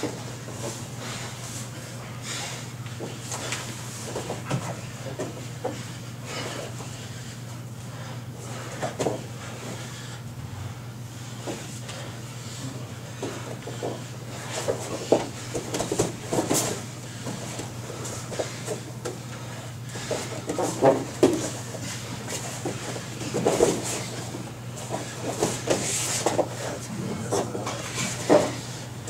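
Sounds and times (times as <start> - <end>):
low hum: 10.3 - 11.3.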